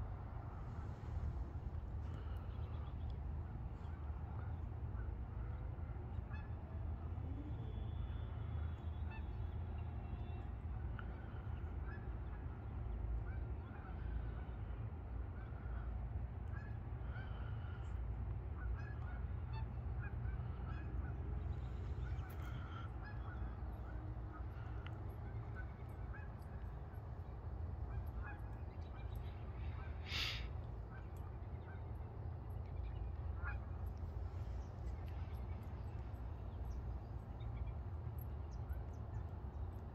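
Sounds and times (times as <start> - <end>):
geese honking: 22.0 - 26.8, 27.9 - 31.9, 33.2 - 34.6.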